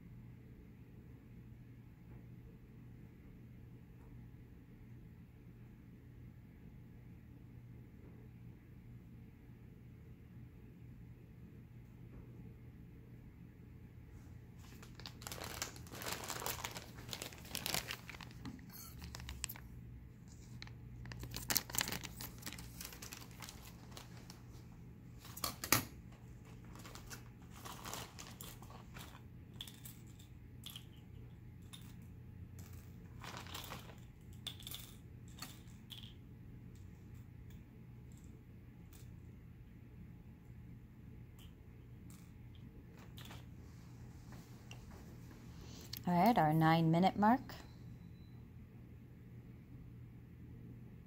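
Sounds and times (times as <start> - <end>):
steady low hum: 0.0 - 51.0
crinkling and rustling: 14.5 - 31.0, 32.6 - 36.1, 42.1 - 46.1.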